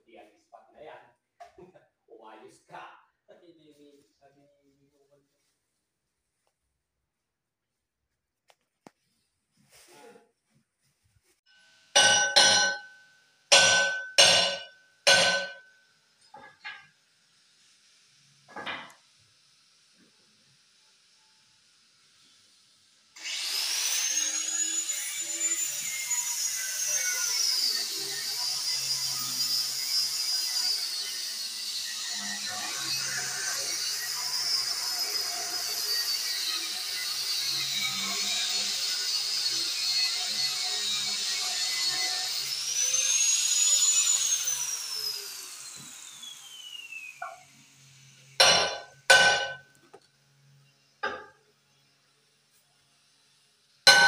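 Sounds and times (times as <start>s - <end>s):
angle grinder whining: 13.5s - 15.7s, 23.2s - 49.6s.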